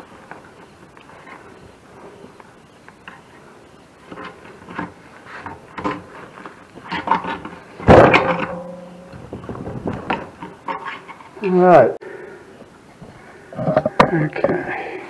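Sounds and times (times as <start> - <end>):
loud metallic clang: 7.8 - 9.2.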